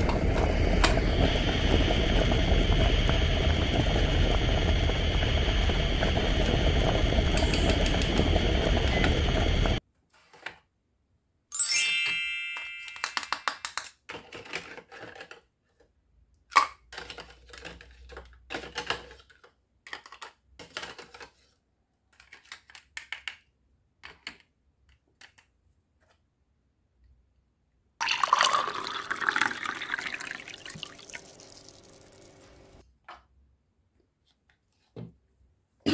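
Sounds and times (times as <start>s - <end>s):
steady noise: 0.0s - 9.8s
short bright chime: 11.5s - 13.3s
plastic toys clicking and clacking: 12.6s - 26.2s.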